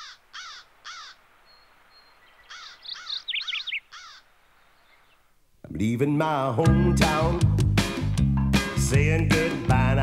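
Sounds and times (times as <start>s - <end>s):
crow cawing: 0.0s - 1.2s, 2.4s - 4.4s.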